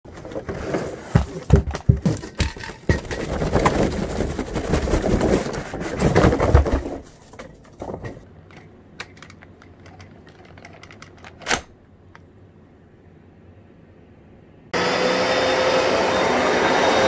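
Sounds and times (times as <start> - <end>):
handling rustling and clatter: 0.1 - 12.3.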